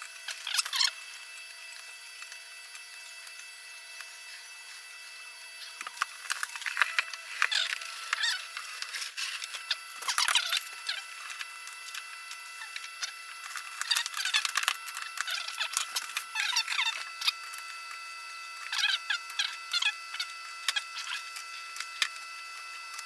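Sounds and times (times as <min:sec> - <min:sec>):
hard plastic clicking and squeaking: 0:05.6 - 0:17.8, 0:18.6 - 0:23.0.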